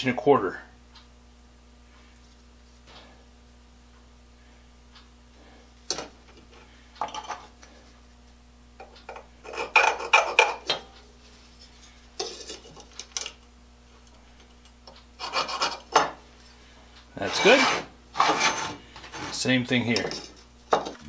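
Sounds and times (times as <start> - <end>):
metal tools scraping steel plate: 17.2 - 20.4.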